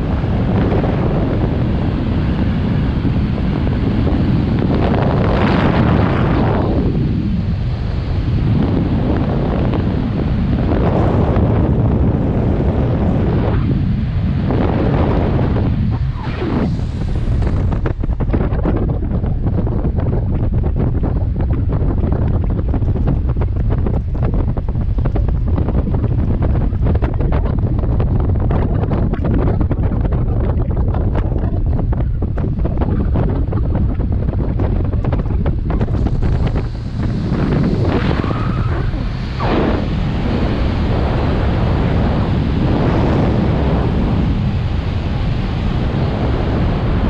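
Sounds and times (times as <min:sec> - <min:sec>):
wind buffeting microphone: 0:00.0 - 0:47.0
falling whoosh: 0:14.7 - 0:18.9.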